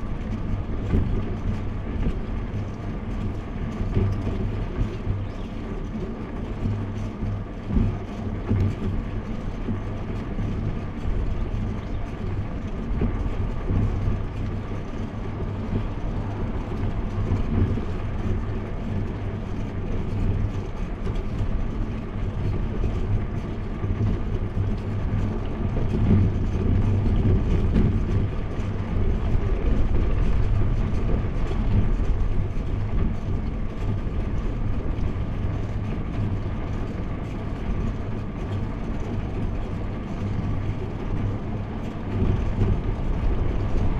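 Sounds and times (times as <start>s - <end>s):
wind and road rumble: 0.0s - 43.9s.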